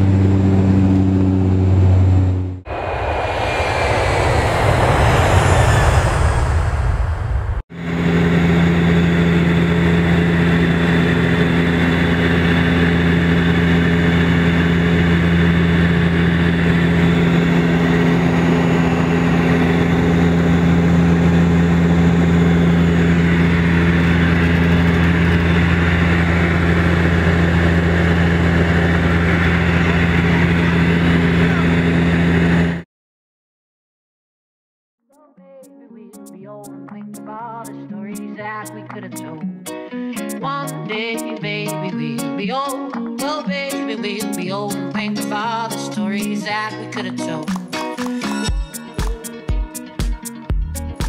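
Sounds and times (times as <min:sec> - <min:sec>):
airplane cabin engine drone: 0:00.0 - 0:32.8
brief rushing sound: 0:02.7 - 0:07.7.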